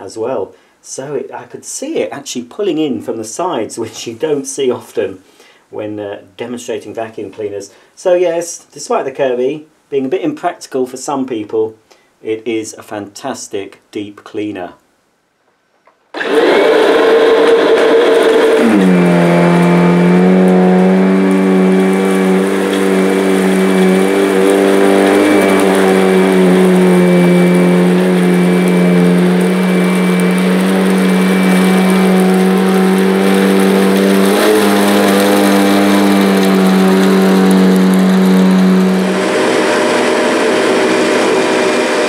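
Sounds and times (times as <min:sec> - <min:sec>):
vacuum cleaner motor humming: 0:16.2 - 0:42.0.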